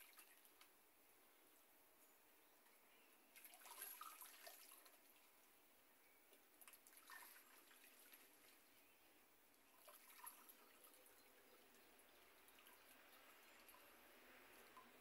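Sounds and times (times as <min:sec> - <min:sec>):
small splashes: 0:00.0 - 0:00.7, 0:03.3 - 0:05.6, 0:06.3 - 0:08.9, 0:09.5 - 0:15.0
water sloshing and dripping: 0:00.0 - 0:00.8, 0:03.3 - 0:05.6, 0:06.3 - 0:15.0.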